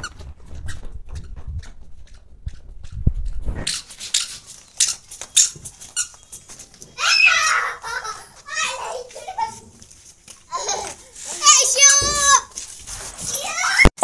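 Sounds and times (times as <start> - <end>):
children's feet running on concrete: 3.9 - 13.8.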